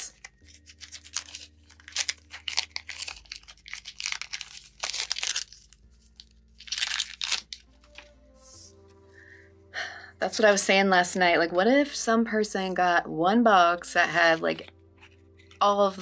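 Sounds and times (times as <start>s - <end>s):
foil wrapper crinkling and tearing: 0.0s - 8.1s.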